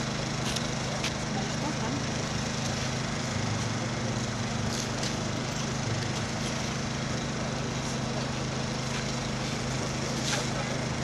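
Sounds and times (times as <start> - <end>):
engine humming: 0.0 - 11.0.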